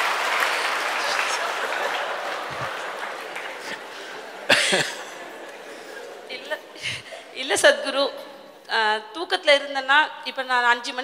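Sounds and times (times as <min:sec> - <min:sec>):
audience applause: 0:00.0 - 0:07.0.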